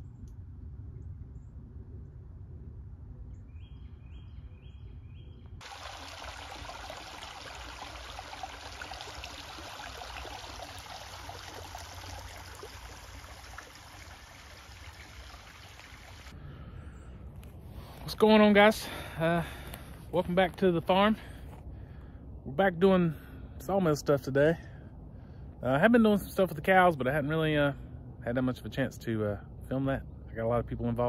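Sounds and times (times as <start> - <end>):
low wind rumble: 0.0 - 31.0
water trickling: 5.6 - 16.4.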